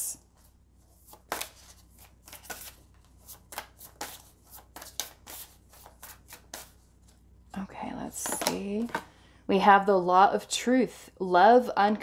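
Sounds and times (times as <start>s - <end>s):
cards being shuffled: 0.9s - 7.2s.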